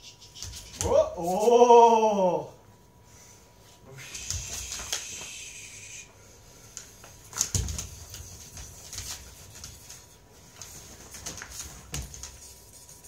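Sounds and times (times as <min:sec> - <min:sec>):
dog scuffling and leaping: 0:07.3 - 0:12.5.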